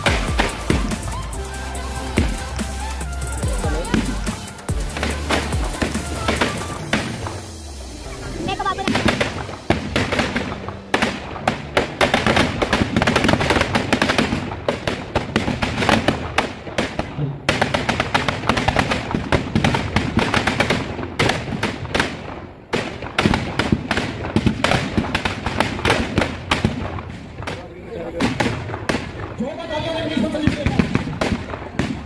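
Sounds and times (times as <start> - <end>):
firecrackers cracking and banging: 0.0 - 32.0.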